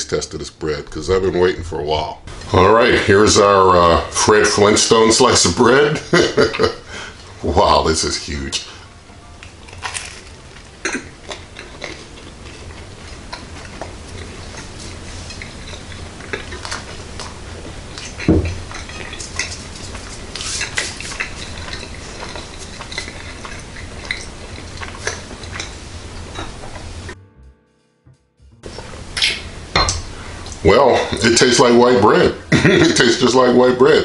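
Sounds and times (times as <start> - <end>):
low steady hum: 0.0 - 34.0
person chewing bread: 9.4 - 26.9.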